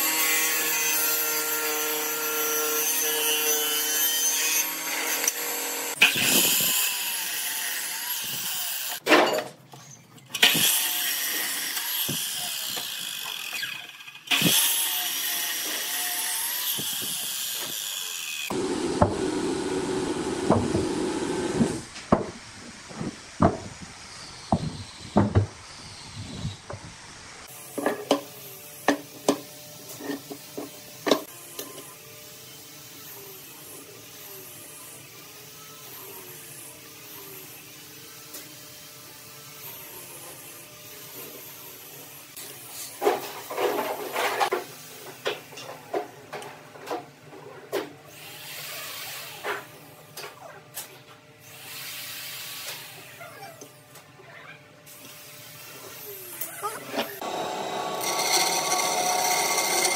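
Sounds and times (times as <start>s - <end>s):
miter saw cutting wood: 0.0s - 9.0s, 10.4s - 21.9s, 54.9s - 59.9s
table saw whining: 55.1s - 59.9s.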